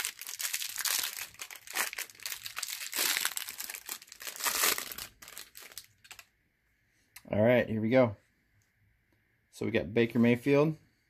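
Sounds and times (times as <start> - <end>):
plastic wrapper tearing and crinkling: 0.0 - 6.3.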